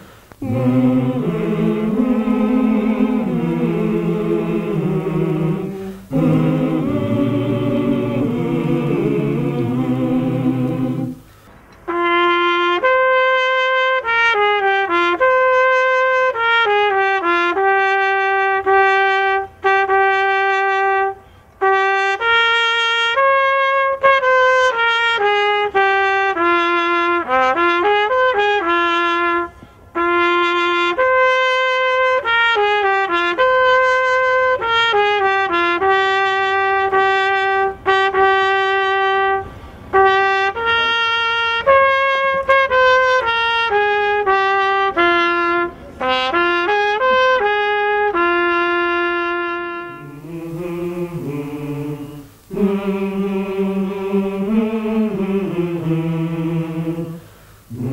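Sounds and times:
solo trumpet slow melody: 0:00.0 - 0:53.1.

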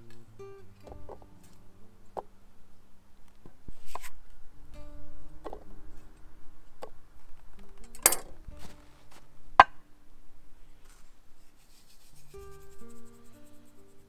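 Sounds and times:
soft background music: 0:00.0 - 0:14.0
cookware knocking and clinking: 0:08.0 - 0:08.4.

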